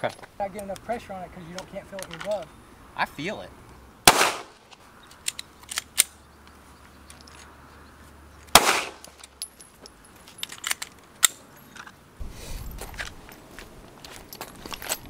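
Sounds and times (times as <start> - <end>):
gunshot with echo: 4.1 - 4.6, 8.6 - 9.0.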